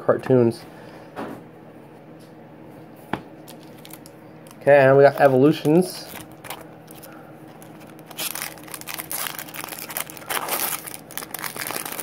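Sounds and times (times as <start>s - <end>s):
foil wrapper crinkling and tearing: 3.5s - 12.0s.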